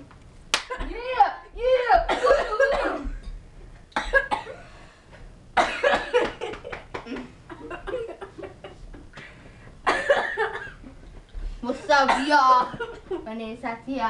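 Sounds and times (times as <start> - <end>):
girls coughing: 1.8 - 3.3, 4.0 - 4.7, 5.6 - 8.3, 9.8 - 10.9, 11.7 - 13.1
girls laughing: 6.1 - 9.1.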